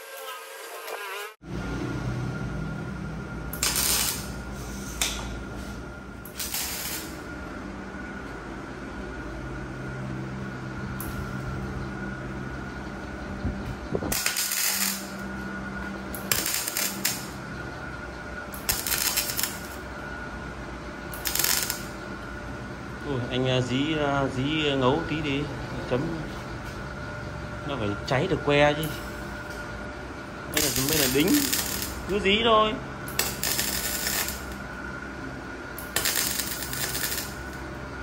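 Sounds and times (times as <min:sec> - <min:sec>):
arc welding crackling: 0:00.0 - 0:01.4, 0:03.4 - 0:07.3, 0:14.1 - 0:17.7, 0:18.4 - 0:19.9, 0:21.1 - 0:22.2, 0:30.4 - 0:35.0, 0:35.7 - 0:37.9
steady low hum: 0:01.3 - 0:38.0.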